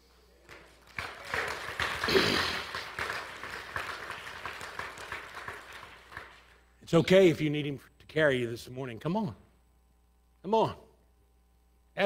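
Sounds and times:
congregation applauding: 0.4s - 6.7s.

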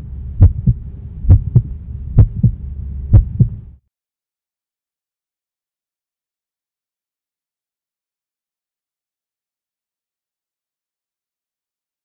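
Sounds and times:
heartbeat thumps: 0.0s - 3.6s
low steady hum: 0.0s - 3.8s.

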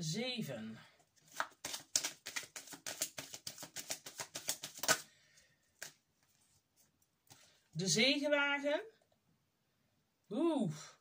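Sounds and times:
cards being shuffled: 1.2s - 5.1s, 5.8s - 7.4s.

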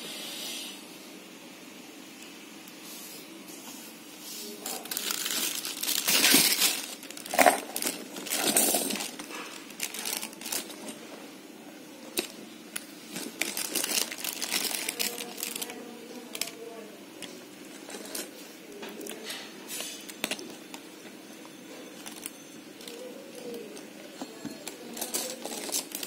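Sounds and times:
plastic packaging crinkling: 4.6s - 11.0s, 12.1s - 16.7s, 17.6s - 18.3s, 19.0s - 21.0s, 21.9s - 26.0s.

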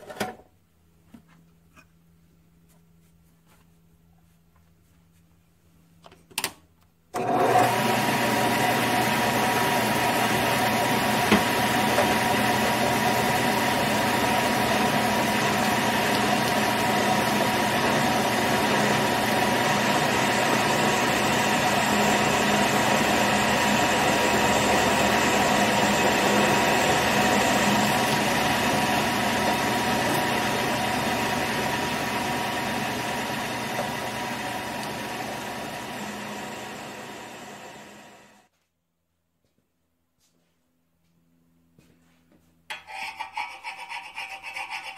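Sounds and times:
lathe motor and gear whine: 7.2s - 38.4s.

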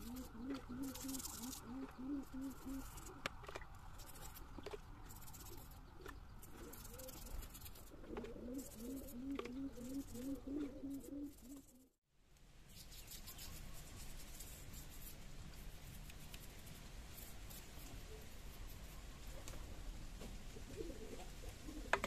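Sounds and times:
dove cooing: 0.0s - 3.4s, 6.4s - 11.9s, 20.5s - 22.0s.

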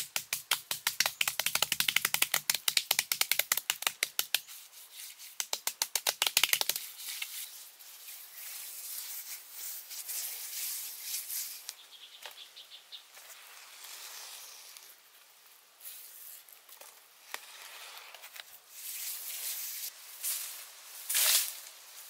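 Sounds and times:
hissing scrape: 13.2s - 14.9s.

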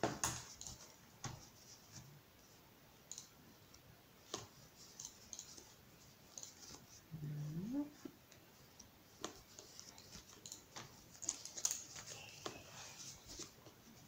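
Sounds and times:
fabric rustling in finger knitting: 0.4s - 14.0s
small clicks and ticks: 3.0s - 3.8s, 8.8s - 12.1s.

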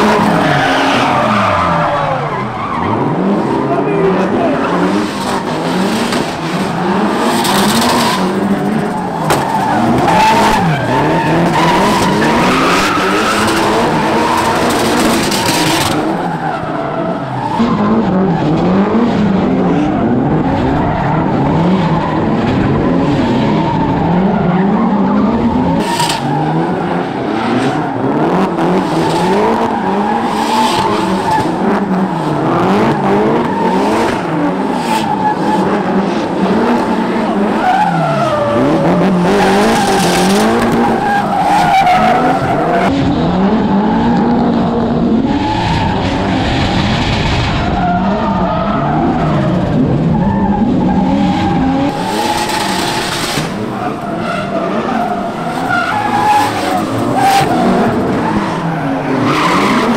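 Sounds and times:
tyres squealing and skidding: 0.0s - 42.9s, 45.1s - 59.9s
car engines revving: 0.0s - 59.9s.

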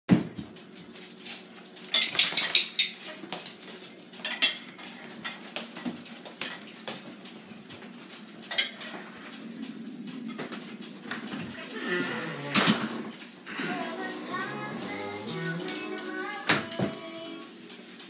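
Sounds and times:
hard objects clinking: 1.9s - 3.6s.

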